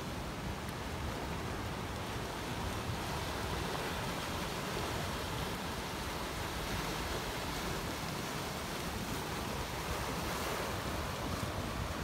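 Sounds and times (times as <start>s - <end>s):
sea surf against rocks: 0.0s - 12.0s.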